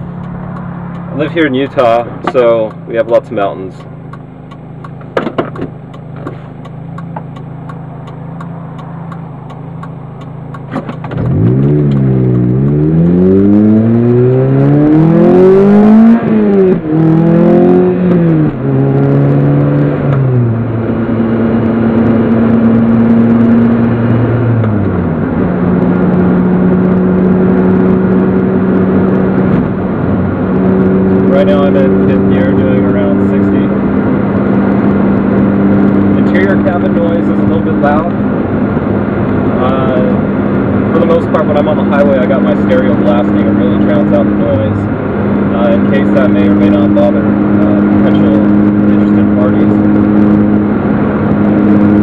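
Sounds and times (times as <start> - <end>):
car engine accelerating: 0.0 - 52.0.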